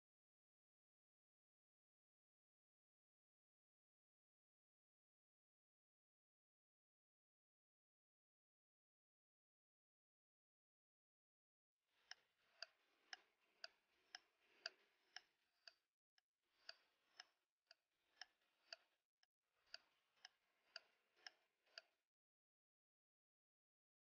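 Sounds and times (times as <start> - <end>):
clock ticking: 12.0 - 15.9, 16.5 - 19.0, 19.6 - 22.0.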